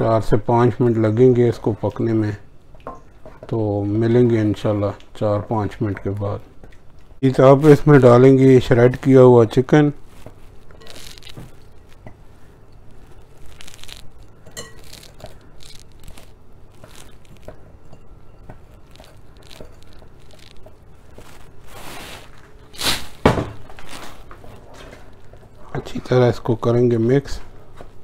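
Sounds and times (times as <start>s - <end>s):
wooden spoon scraping pan: 12.9s - 23.2s.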